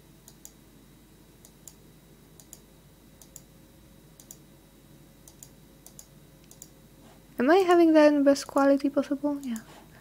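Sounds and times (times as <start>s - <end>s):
mouse or key clicks: 5.3s - 6.7s.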